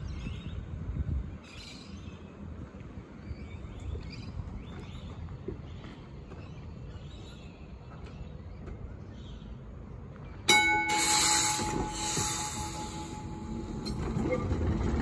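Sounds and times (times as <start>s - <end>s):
tram rumbling: 0.0s - 15.0s
tram gong strike: 10.5s - 14.8s
bright hiss: 10.9s - 13.8s.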